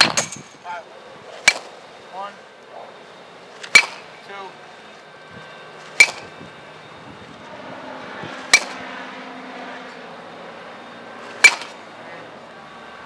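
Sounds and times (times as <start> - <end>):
baseball bat hitting ball: 1.4 - 1.7, 3.6 - 4.1, 6.0 - 6.3, 8.5 - 8.8, 11.3 - 11.8.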